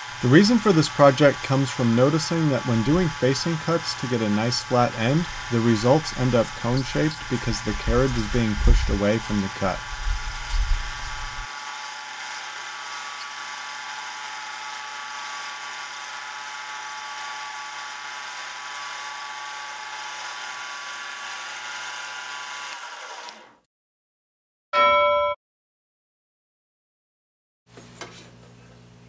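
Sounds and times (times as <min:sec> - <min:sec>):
tool cutting brass: 0:00.0 - 0:23.0
lathe motor whine: 0:00.0 - 0:23.4.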